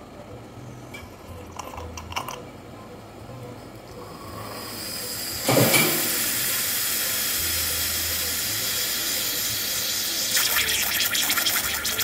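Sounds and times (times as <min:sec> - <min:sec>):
espresso machine steam hissing: 0:04.0 - 0:12.0.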